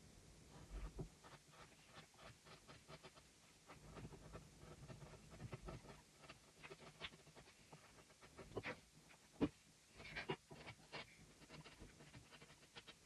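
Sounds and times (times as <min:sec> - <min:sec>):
carving gouge scraping wood: 0:00.9 - 0:08.8.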